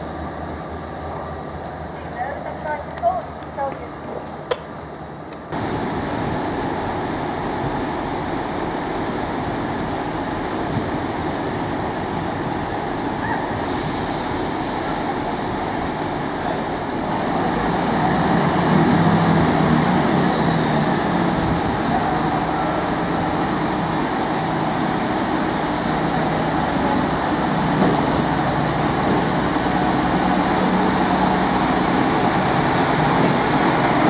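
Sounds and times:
train diesel engine running: 0.0s - 34.0s.

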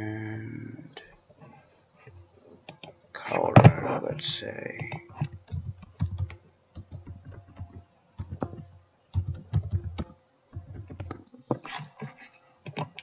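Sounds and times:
computer keyboard typing: 2.7s - 2.9s, 4.8s - 13.0s.

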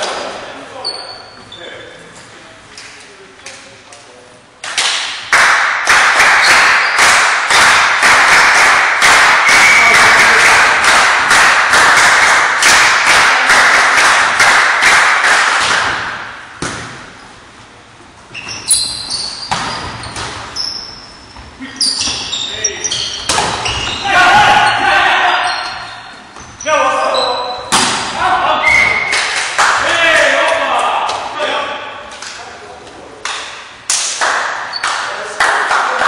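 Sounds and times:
sneakers squeaking on wooden floor: 0.7s - 2.3s, 6.4s - 7.0s, 18.3s - 27.8s, 28.6s - 29.1s
crowd clapping rhythmically: 4.6s - 16.3s, 29.1s - 29.8s, 33.2s - 36.0s
volleyball hits: 4.7s - 17.1s, 23.2s - 24.1s, 27.7s - 28.2s
crowd shouting: 24.0s - 25.6s.

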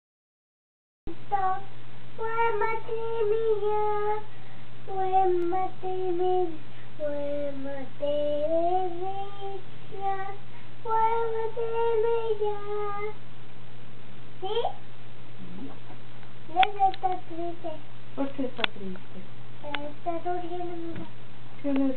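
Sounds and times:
toddler girl singing: 1.1s - 13.2s, 16.5s - 17.8s, 19.6s - 21.1s.

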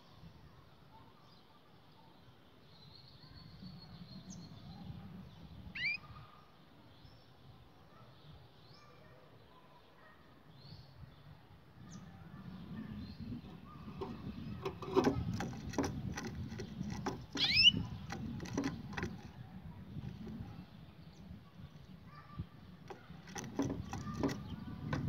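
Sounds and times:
canary chirp gliding down: 5.8s - 6.1s, 12.6s - 21.2s
bird tapping in cage: 13.4s - 20.5s, 22.8s - 25.0s.

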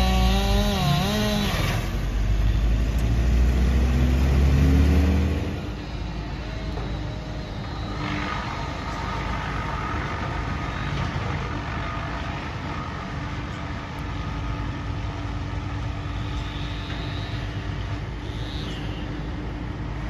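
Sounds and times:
engine running steadily: 0.0s - 20.0s
faint steady whine: 5.4s - 20.0s.

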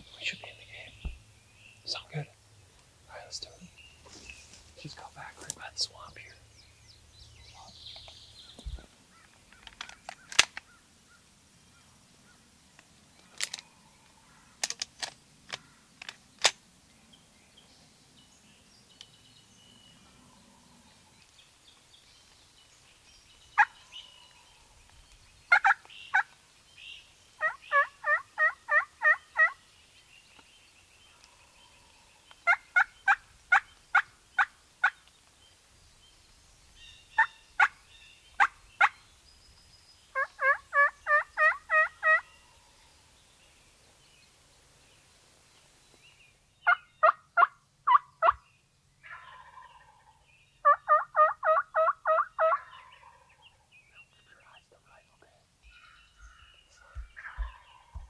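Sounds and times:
turkey call yelps and cutts: 25.5s - 26.3s, 27.4s - 29.6s, 32.4s - 35.0s, 37.2s - 37.8s, 38.4s - 39.0s, 40.2s - 42.5s, 46.6s - 48.4s, 49.0s - 53.5s.

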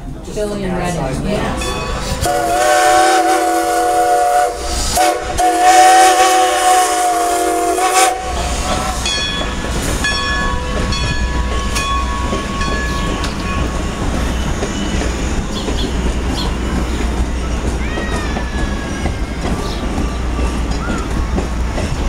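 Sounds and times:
train rumbling past: 0.0s - 22.0s
steam whistle blast: 2.2s - 8.7s
bell ringing: 9.0s - 13.9s.

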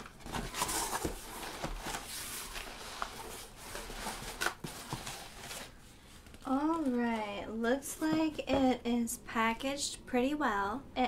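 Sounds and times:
cardboard box rustling and scraping: 0.0s - 5.8s.

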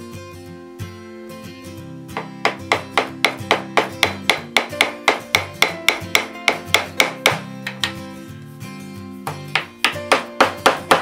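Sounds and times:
acoustic guitar background music: 0.0s - 11.0s
hammer tapping on screwdriver: 2.2s - 8.0s.

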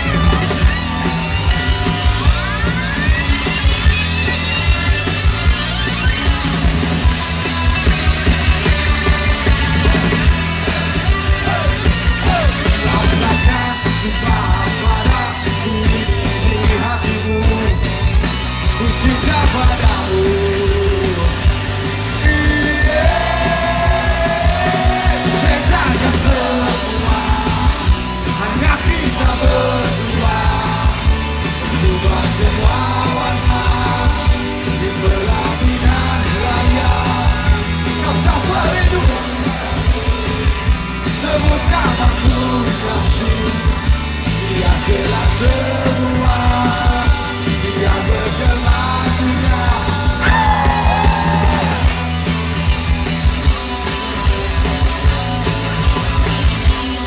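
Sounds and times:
live rock band: 0.0s - 57.0s
man singing: 11.3s - 40.4s, 41.0s - 52.0s.

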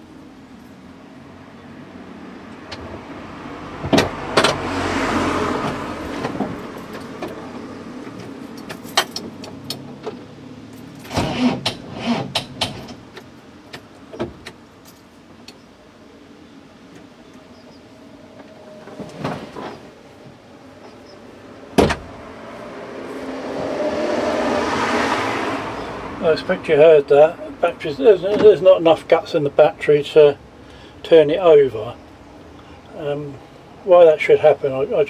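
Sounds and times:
sharp clunks: 21.8s - 22.2s.

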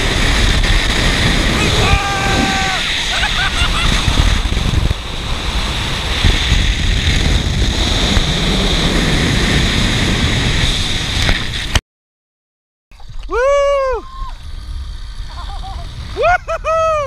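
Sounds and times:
wind buffeting microphone: 0.0s - 11.8s
high whir of trolley on cable: 13.0s - 17.0s.

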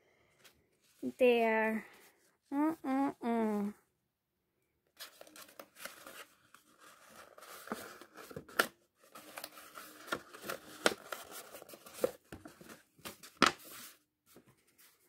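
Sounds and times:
cardstock rustling and crinkling: 5.0s - 15.0s.

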